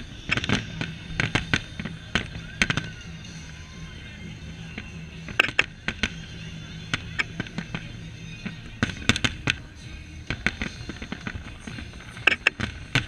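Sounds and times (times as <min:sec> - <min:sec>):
firework shells bursting: 0:00.2 - 0:03.0.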